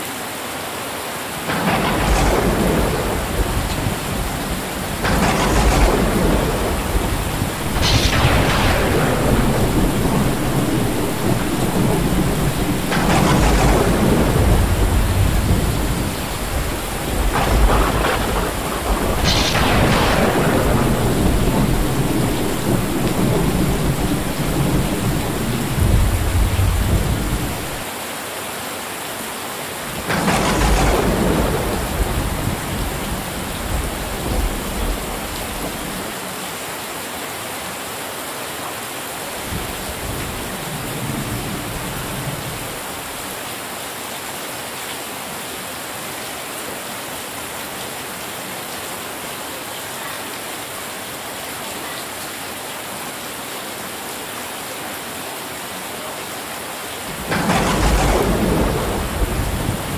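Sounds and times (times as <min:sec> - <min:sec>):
heavy rain on metal roofs: 0:00.0 - 0:59.9
thunder rolling: 0:01.4 - 0:27.8, 0:29.9 - 0:36.2, 0:39.4 - 0:43.2, 0:57.0 - 0:59.9.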